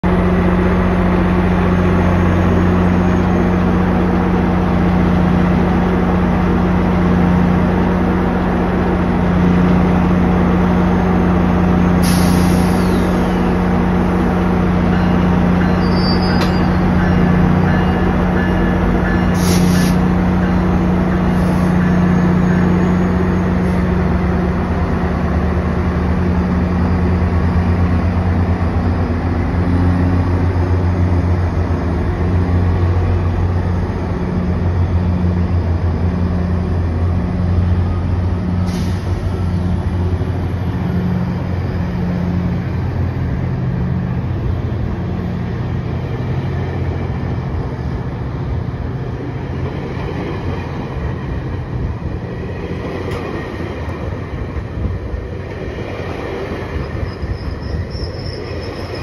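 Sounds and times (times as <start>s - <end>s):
diesel locomotive idling: 0.0s - 59.0s
air hiss bursts: 12.0s - 13.1s, 19.4s - 20.0s, 38.6s - 39.2s.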